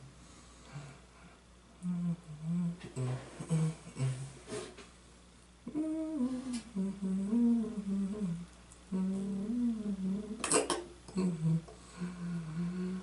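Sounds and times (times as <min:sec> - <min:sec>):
person humming: 0:01.8 - 0:04.7, 0:05.6 - 0:13.0.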